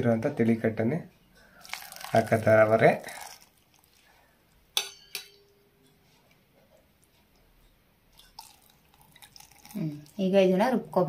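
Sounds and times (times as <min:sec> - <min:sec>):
steel kitchenware clinking: 0:04.7 - 0:06.9.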